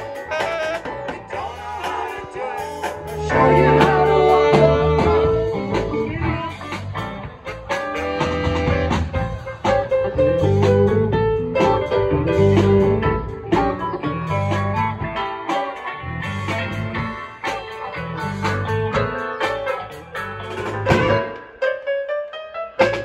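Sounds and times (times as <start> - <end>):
saxophone: 0.0 - 9.8
drum kit beat: 0.0 - 21.7, 22.8 - 23.0
electric guitars: 0.0 - 22.0.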